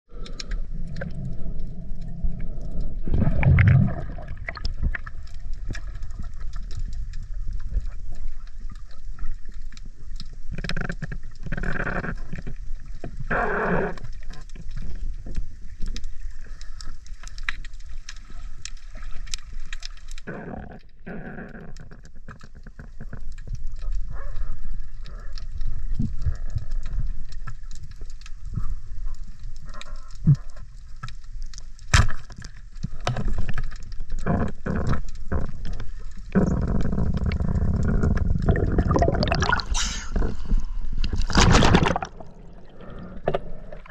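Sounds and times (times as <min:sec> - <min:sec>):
underwater rushing and gurgling: 0:00.1 - 0:43.9
water splashing at surface: 0:38.4 - 0:43.9.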